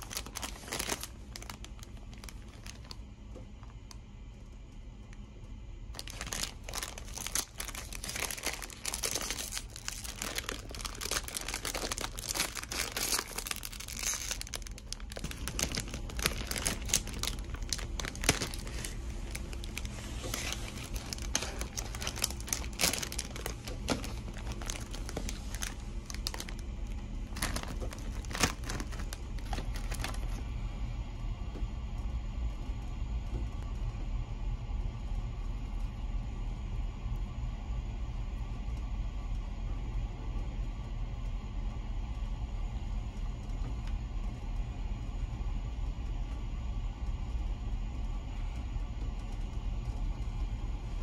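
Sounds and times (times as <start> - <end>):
plastic snack bag crinkling: 0.0 - 3.9, 5.9 - 30.4.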